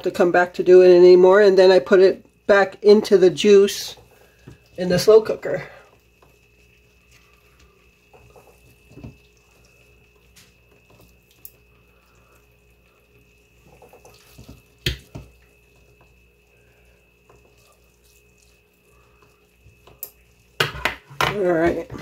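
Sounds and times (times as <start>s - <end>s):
faint high whine: 0.0s - 22.0s
wet meat squelching and dripping: 4.0s - 20.6s.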